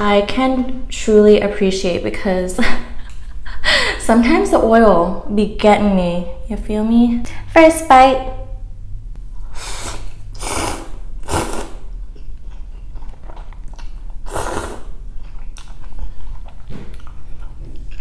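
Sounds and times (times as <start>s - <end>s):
slurping noodles: 9.5s - 15.1s
wet chewing clicks: 12.1s - 14.2s, 15.2s - 18.0s.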